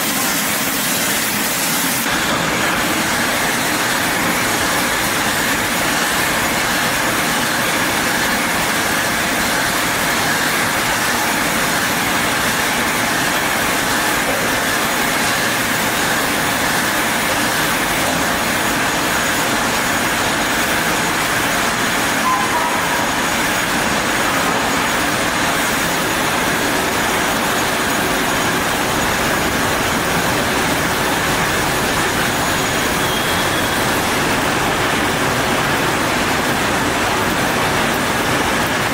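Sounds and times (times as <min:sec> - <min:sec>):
bottle filling machine whirring: 0:00.0 - 0:38.9
faint high tone: 0:22.2 - 0:23.8.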